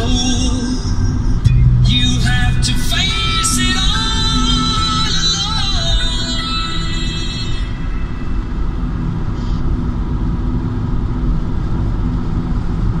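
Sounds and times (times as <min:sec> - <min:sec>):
music: 0:00.0 - 0:08.5
road and engine noise in car: 0:00.0 - 0:13.0.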